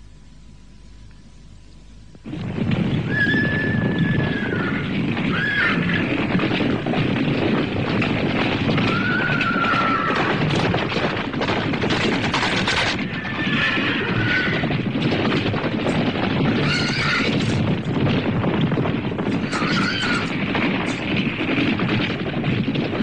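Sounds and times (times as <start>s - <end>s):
hooves clattering: 2.2s - 23.0s
horse neighing: 3.0s - 6.3s, 13.0s - 14.8s, 16.6s - 17.6s, 19.4s - 20.4s.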